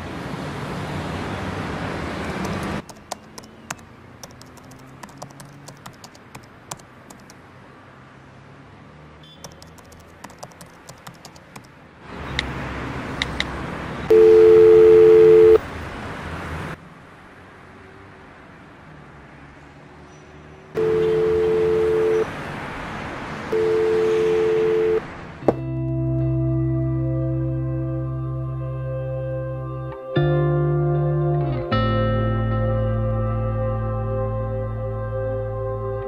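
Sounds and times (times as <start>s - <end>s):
laptop keyboard typing: 2.4s - 7.4s, 9.4s - 11.7s
telephone dial tone: 14.1s - 15.6s, 20.8s - 22.3s, 23.5s - 25.0s.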